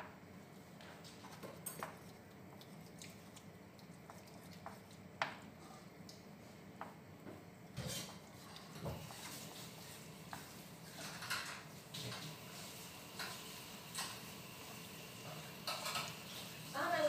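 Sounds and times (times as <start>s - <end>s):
spatula scraping frying pan: 7.8s - 8.2s.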